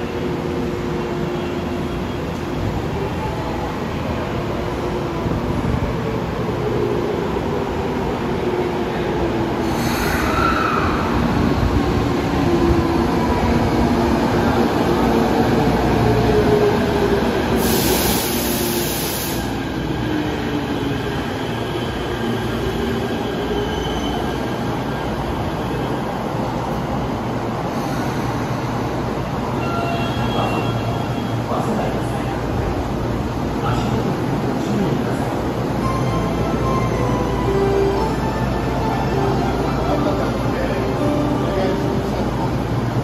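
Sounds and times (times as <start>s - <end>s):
subway train braking: 0.0s - 43.0s
air hiss: 17.6s - 19.7s.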